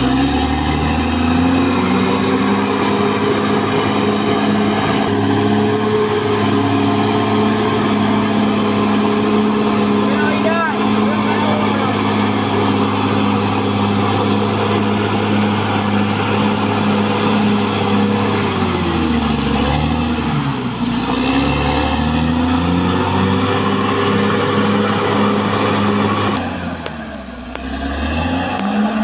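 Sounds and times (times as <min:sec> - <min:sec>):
bulldozer diesel engine running: 0:00.0 - 0:29.0.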